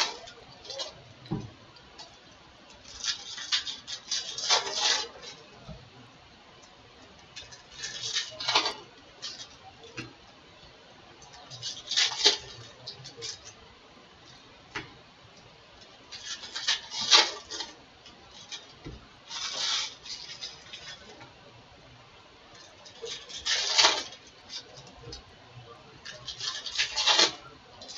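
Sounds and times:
foil wrappers crinkling: 2.8s - 5.6s, 19.3s - 21.2s, 22.6s - 24.9s, 26.0s - 27.9s.

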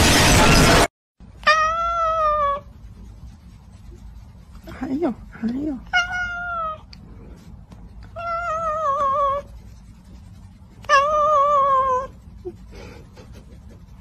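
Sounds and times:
cat meowing: 1.4s - 2.7s, 5.9s - 6.8s.

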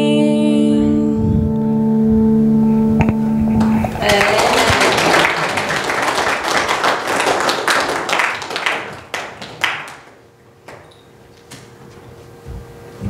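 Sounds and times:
congregation applauding: 3.5s - 10.3s.

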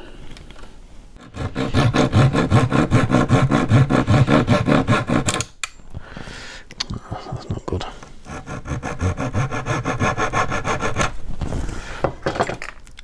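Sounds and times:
metal file rasping on wood: 1.2s - 5.4s, 8.2s - 11.2s.

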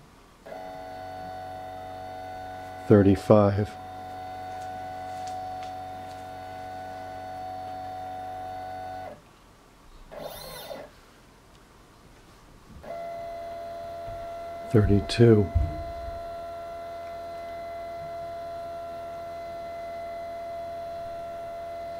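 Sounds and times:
stepper motors whining: 10.1s - 10.9s.

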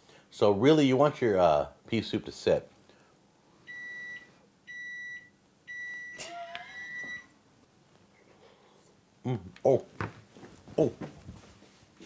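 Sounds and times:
electronic beeper tone: 4.8s - 7.3s.

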